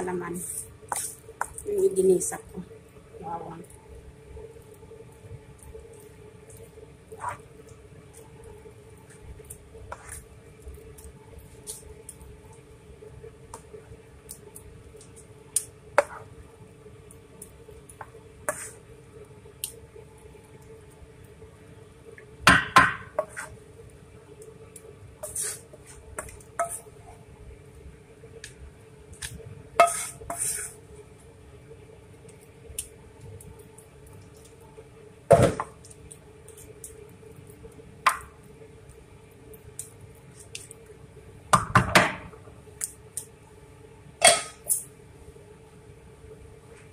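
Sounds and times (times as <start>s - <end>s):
metal spoon scraping metal bowl: 29.8s - 30.7s.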